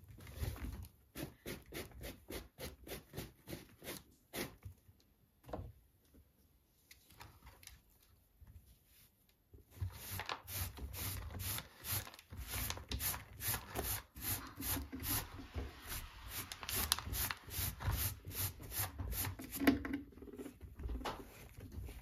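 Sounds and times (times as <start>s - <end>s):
brush sweeping on plastic mat: 8.7s - 19.7s, 21.2s - 22.0s.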